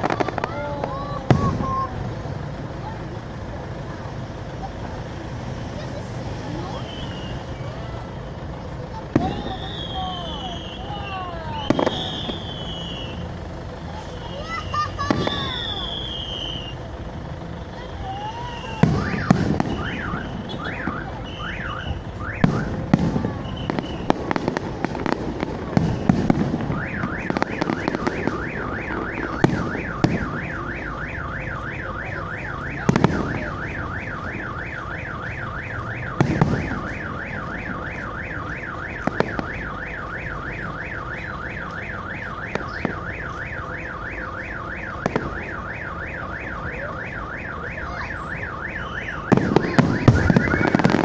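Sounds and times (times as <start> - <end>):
firework bangs: 0.0 - 3.0, 8.6 - 13.4, 14.0 - 17.0, 17.8 - 51.0
car alarm siren warbling: 9.1 - 13.3, 14.0 - 16.8, 17.8 - 51.0.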